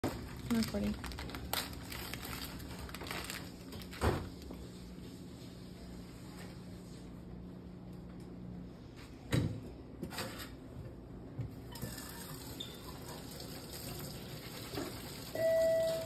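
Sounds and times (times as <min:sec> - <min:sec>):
faucet running into metal sink: 0:11.7 - 0:16.0.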